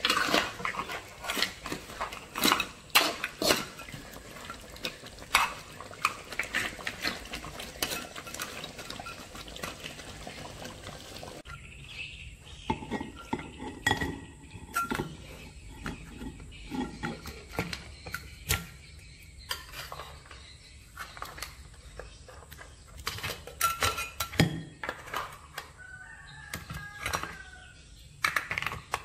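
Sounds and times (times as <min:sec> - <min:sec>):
bowl and plate clinking: 0:00.0 - 0:11.4, 0:12.7 - 0:15.2.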